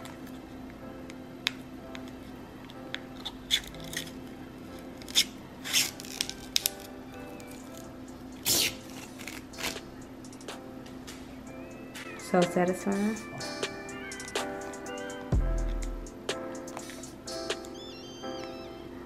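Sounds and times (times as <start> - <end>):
soft background music: 0.0 - 19.0
plastic film peeling and crinkling: 3.2 - 7.8, 8.4 - 9.8.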